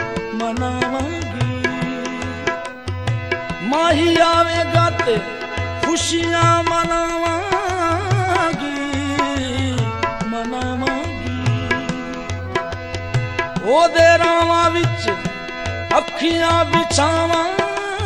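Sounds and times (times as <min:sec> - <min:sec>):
steady drum beat: 0:06.3 - 0:18.0
gliding wavering melody: 0:06.7 - 0:17.6.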